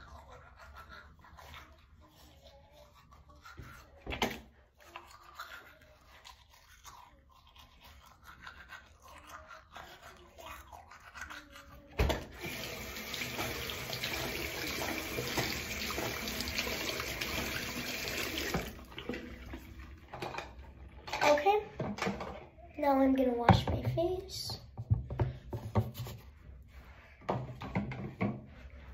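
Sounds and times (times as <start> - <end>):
toothbrush scrubbing: 0.0 - 20.0
tap running into sink: 12.0 - 19.6.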